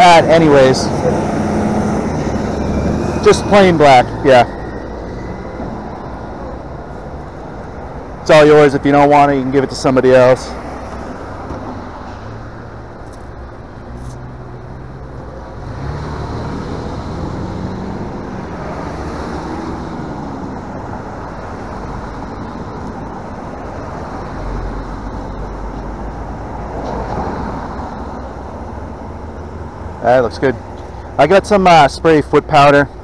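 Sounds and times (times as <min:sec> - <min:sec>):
cars driving through: 0:00.0 - 0:33.0
engine pulling away: 0:00.2 - 0:07.2, 0:14.2 - 0:23.3.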